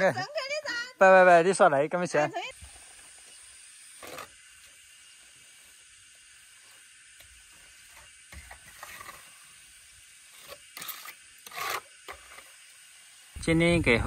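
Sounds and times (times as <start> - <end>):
trowel scraping cement on wall: 7.2 - 12.6.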